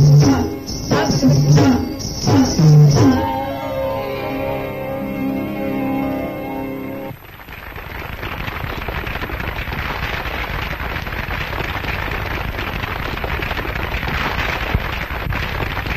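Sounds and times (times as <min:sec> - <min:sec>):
dense crackle and hiss: 0:06.9 - 0:15.9.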